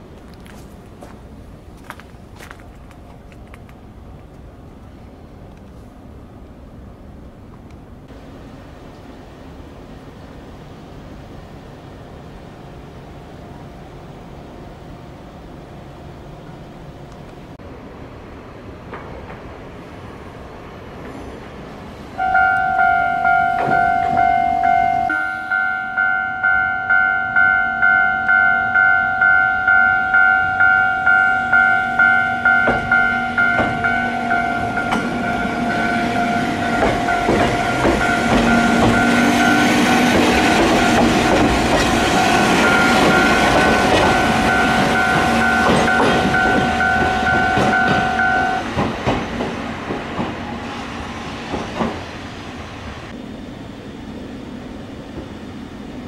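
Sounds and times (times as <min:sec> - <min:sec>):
level crossing alarm clanging: 0:22.2 - 0:49.2
electric train wheels clattering: 0:22.2 - 0:56.0.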